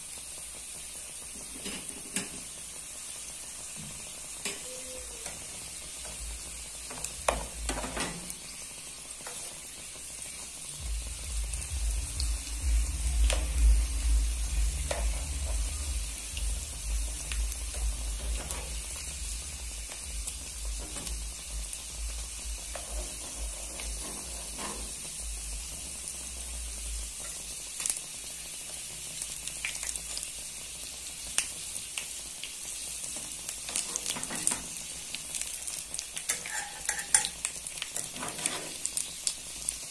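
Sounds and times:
food sizzling in hot oil: 0:00.0 - 0:39.9
low rumble: 0:10.8 - 0:22.7.

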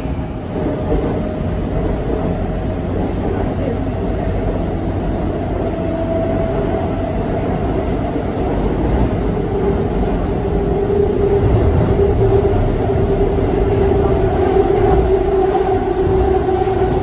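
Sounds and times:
train humming tone: 0:00.0 - 0:17.0
train wheels rumbling on rail: 0:00.0 - 0:17.0.

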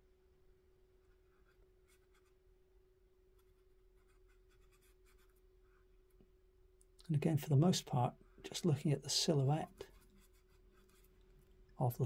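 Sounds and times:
faint hum: 0:00.0 - 0:12.0
paintbrush strokes on paper: 0:03.3 - 0:05.4, 0:08.6 - 0:11.4.

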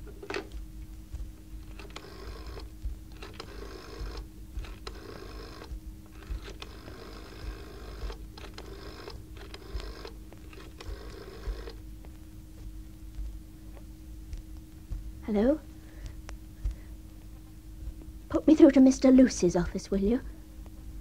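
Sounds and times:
rotary dial whirring clicks: 0:00.0 - 0:15.0.

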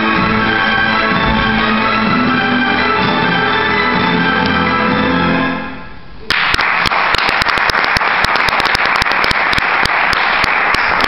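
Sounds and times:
music: 0:00.0 - 0:06.1
group applauding: 0:06.3 - 0:11.0.

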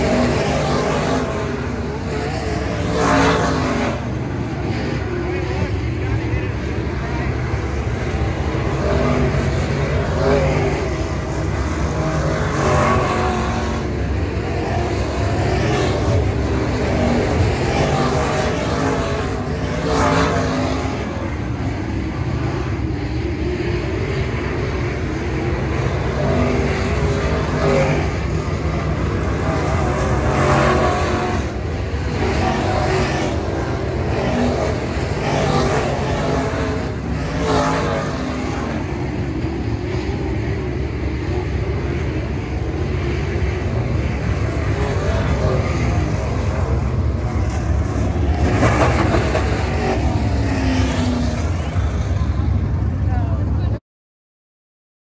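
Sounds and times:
race car engines: 0:00.0 - 0:53.8
race cars passing close: 0:00.0 - 0:53.8.

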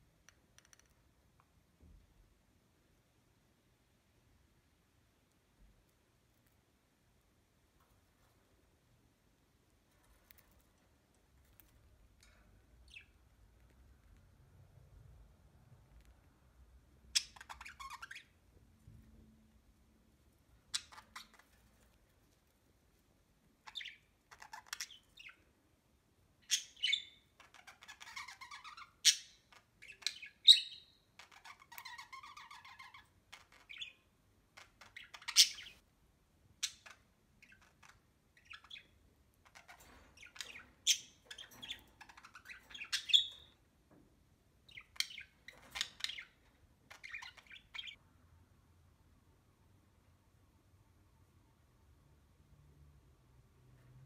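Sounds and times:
budgies chirping: 0:17.1 - 0:18.4, 0:20.7 - 0:21.6, 0:23.6 - 0:25.4, 0:26.4 - 0:35.8, 0:36.6 - 0:43.6, 0:44.6 - 0:48.0.

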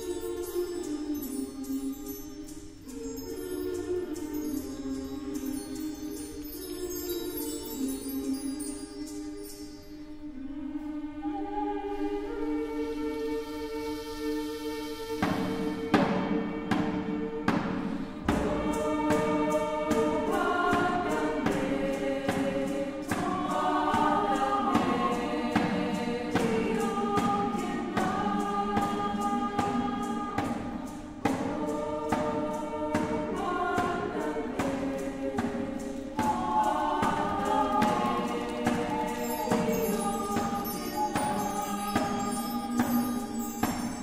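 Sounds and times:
girls' choir singing: 0:15.2 - 0:44.0.

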